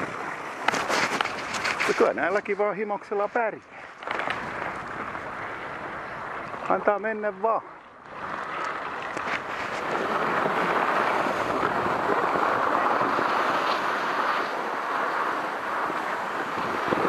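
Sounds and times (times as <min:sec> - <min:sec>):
wind on microphone: 0:00.0 - 0:02.5, 0:08.1 - 0:17.0
skis sliding on snow: 0:00.0 - 0:17.0.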